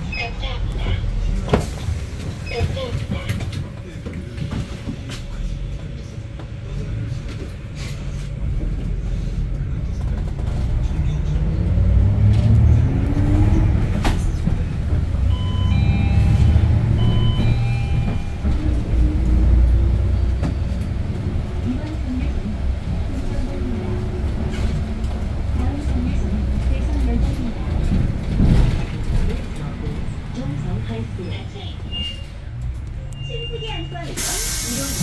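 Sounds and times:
bus engine rumble: 0.0 - 35.0
short electronic beeps: 15.3 - 18.4.

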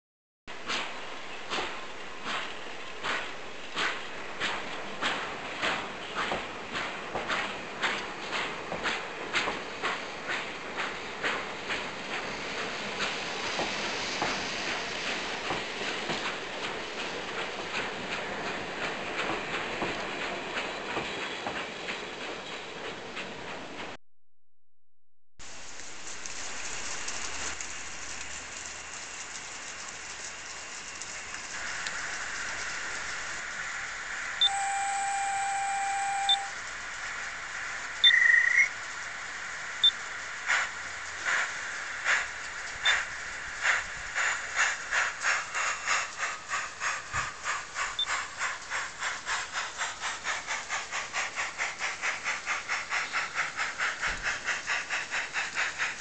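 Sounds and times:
model steam locomotive hissing: 1.5 - 19.8, 30.8 - 56.0
short whistle toot: 34.4 - 36.6
steam whistle: 34.4 - 36.6
steam exhaust chuffs: 38.9 - 56.0.

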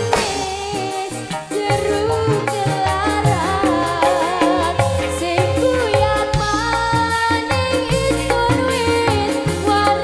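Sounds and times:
sharp percussion strokes: 0.0 - 2.8
live band playing: 0.0 - 10.0
woman singing into microphone: 0.0 - 10.0.

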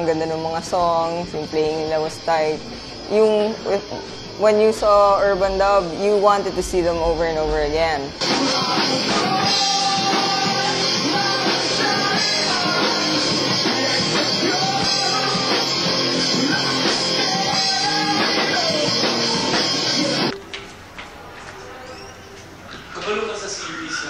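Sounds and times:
live rock band: 8.1 - 20.4
person singing: 8.2 - 20.4.

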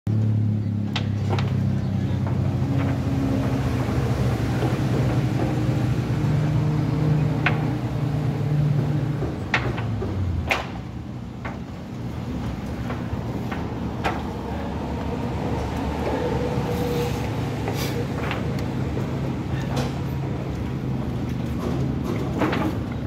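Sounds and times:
vehicle engine running: 0.1 - 23.0
sharp clicks and knocks: 7.1 - 14.5.

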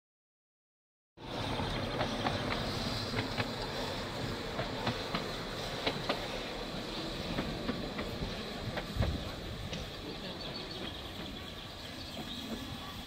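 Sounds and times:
steam locomotive hissing: 1.2 - 13.0
locomotive clicks and knocks: 4.5 - 6.3.

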